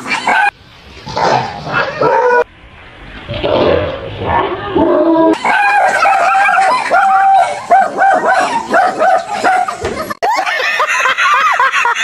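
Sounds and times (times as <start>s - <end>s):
small dog barking: 5.4s - 9.7s.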